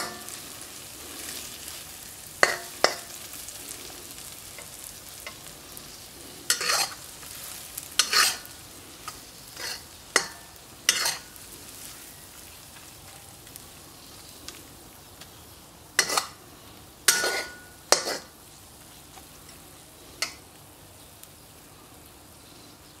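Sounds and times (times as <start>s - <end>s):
metal spoon scraping wok: 0.0s - 11.4s, 16.0s - 16.4s, 17.1s - 18.3s
food sizzling: 0.0s - 23.0s.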